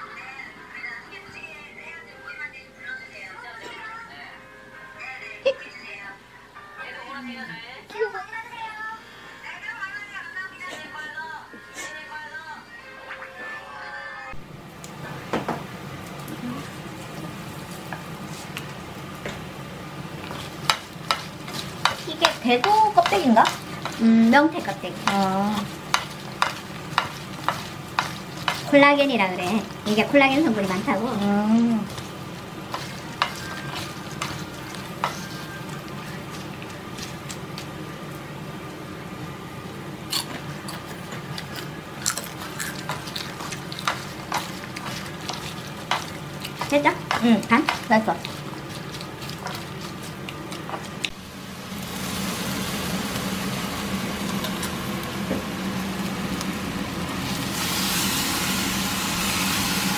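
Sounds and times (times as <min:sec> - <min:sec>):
wet sticky stirring: 0:20.2 - 0:37.7, 0:40.7 - 0:51.2
wooden utensils clicking on bowl: 0:20.3 - 0:28.8, 0:32.7 - 0:37.4, 0:42.8 - 0:50.9.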